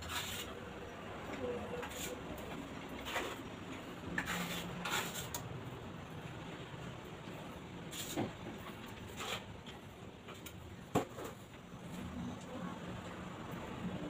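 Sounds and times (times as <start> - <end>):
trowel scraping mortar: 0.0 - 0.6, 1.8 - 3.5, 4.1 - 5.5, 7.9 - 8.3, 9.1 - 9.5.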